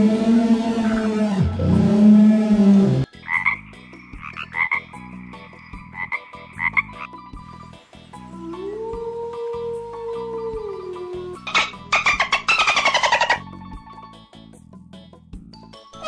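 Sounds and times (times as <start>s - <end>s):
deep roar: 0.0s - 3.1s
frog croaking: 3.0s - 7.3s, 11.4s - 13.4s.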